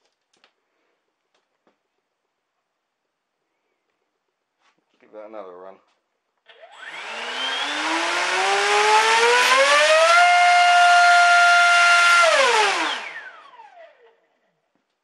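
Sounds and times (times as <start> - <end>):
electric motor propeller whine: 6.5 - 14.1.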